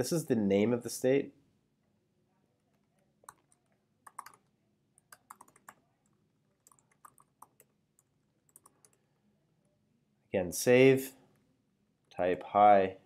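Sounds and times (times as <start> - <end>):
keyboard typing clicks: 3.2 - 4.4, 5.0 - 5.8, 6.6 - 9.0.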